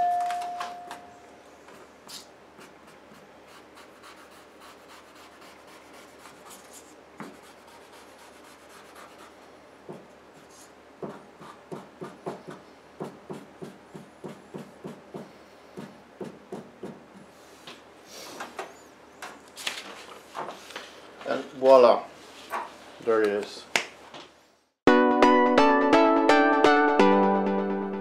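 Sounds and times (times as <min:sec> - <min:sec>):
marker scratching on metal: 0:02.1 - 0:09.5
marker dabbing back and forth: 0:02.1 - 0:17.0.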